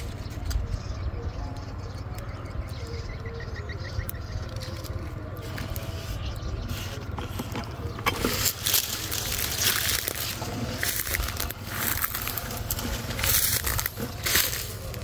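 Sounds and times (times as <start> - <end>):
steady low rumble: 0.0 - 15.0
footsteps through dry undergrowth: 4.3 - 15.0.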